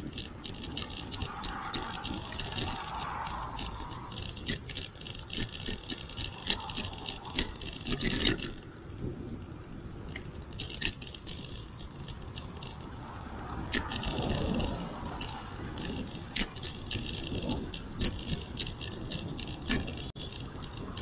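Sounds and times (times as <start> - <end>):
bicycle rattles and clicks: 0.0 - 21.0
cars passing: 0.0 - 21.0
tyres rumbling on pavement: 0.0 - 21.0
wind: 0.0 - 21.0.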